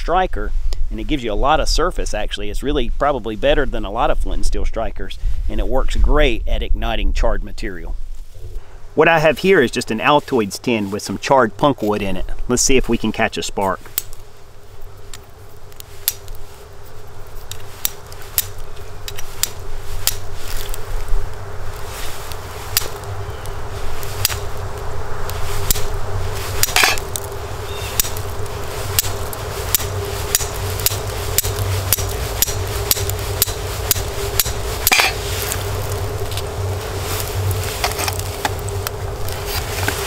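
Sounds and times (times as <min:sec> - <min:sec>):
rock striking steel saw spine: 0:26.6 - 0:27.2, 0:29.7 - 0:35.3, 0:37.8 - 0:38.6.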